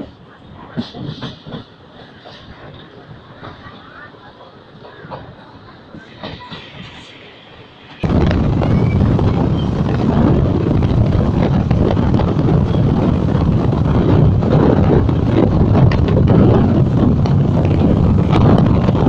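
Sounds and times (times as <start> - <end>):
train running noise: 0.0 - 19.0
wind buffeting microphone: 0.1 - 19.0.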